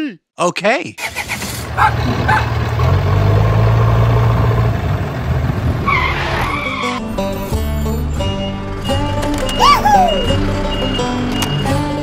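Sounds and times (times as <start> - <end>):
tractor engine running: 1.0 - 5.8.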